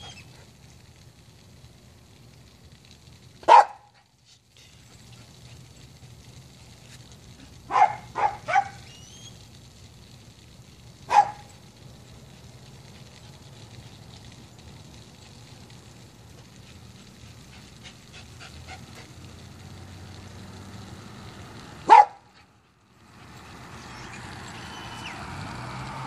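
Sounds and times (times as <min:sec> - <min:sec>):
dog barking: 0:03.4 - 0:04.0, 0:07.7 - 0:08.8, 0:11.1 - 0:11.5, 0:21.8 - 0:22.2.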